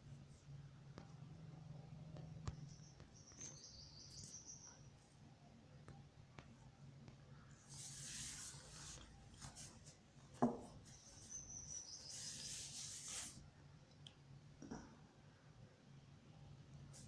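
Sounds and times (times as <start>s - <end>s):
low steady hum: 0.0s - 17.0s
faint rustling and rubbing: 7.4s - 13.5s.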